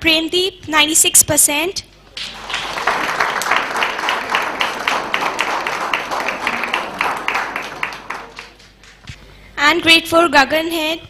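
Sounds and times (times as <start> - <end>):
steady rhythmic claps: 2.0 - 9.4
audience applauding: 2.1 - 9.1.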